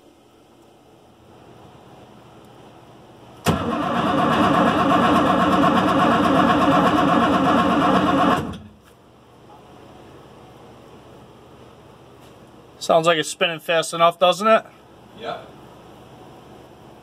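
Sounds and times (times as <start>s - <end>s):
starter motor cranking engine: 3.4s - 8.6s.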